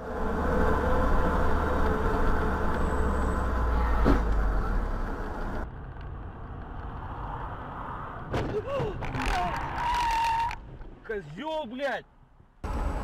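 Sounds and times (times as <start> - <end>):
vehicle engine hum: 0.0 - 8.3, 12.1 - 13.0
road noise inside vehicle: 0.0 - 11.5, 12.1 - 13.0.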